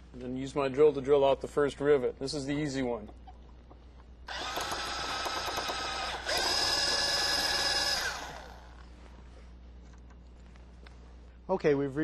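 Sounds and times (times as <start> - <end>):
power drill whining: 4.3 - 8.8.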